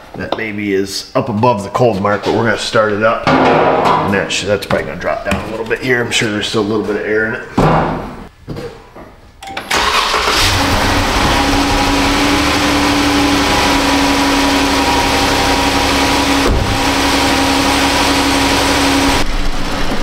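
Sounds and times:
car engine starting and idling: 9.7 - 20.0.

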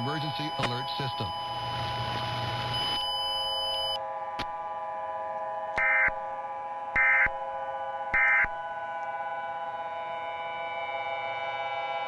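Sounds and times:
digital data tone bursts: 0.0 - 2.0
drone of held tones: 0.0 - 12.0.

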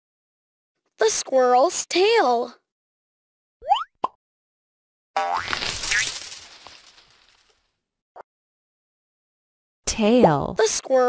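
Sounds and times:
woman speaking: 1.0 - 2.5, 9.9 - 11.0.

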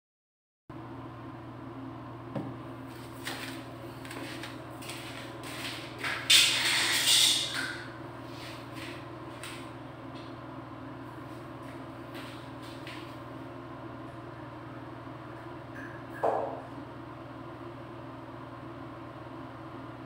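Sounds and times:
steady low hum: 0.7 - 20.0
flip-flop footsteps on tiles: 2.9 - 6.2.

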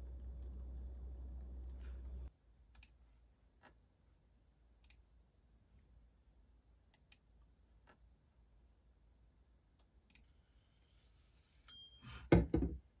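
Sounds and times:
low hum: 0.0 - 2.3.

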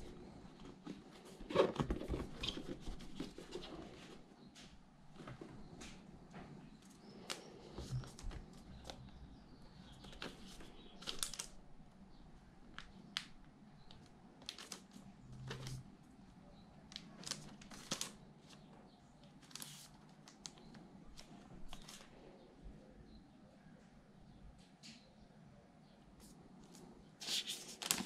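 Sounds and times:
hands handling laptop and packaging: 0.0 - 6.0, 16.9 - 22.1, 27.2 - 28.0.

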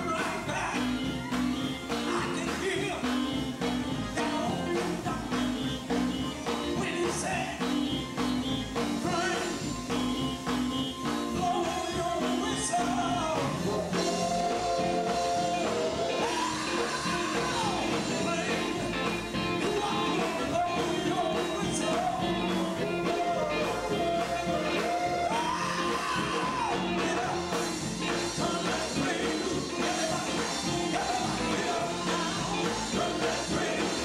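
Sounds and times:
electric guitar band: 0.0 - 34.0
person singing into a microphone: 11.3 - 34.0.

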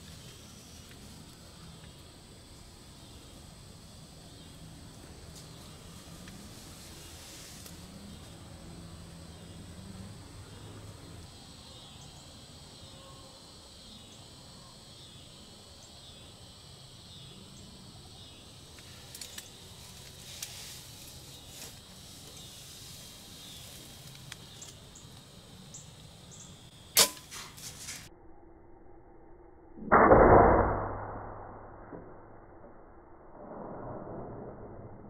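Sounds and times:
faint ticks: 23.7 - 25.3
bow shot snap: 26.9 - 28.1.

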